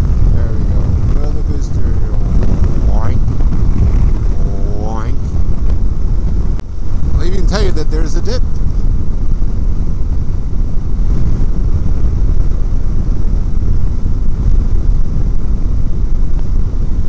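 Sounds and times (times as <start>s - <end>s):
motorcycle road noise: 0.0s - 17.0s
wind buffeting microphone: 0.0s - 17.0s.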